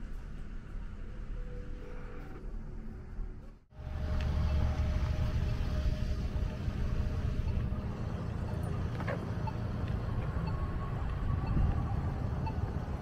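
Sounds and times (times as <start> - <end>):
car road rumble: 3.7 - 13.0.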